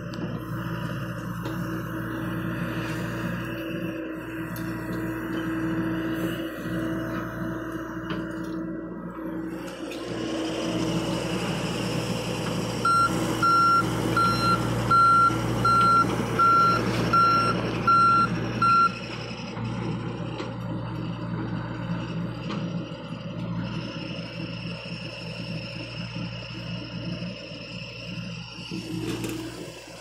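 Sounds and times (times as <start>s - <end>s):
diesel engine running: 0.0s - 30.0s
travel alarm beeping: 12.8s - 19.0s.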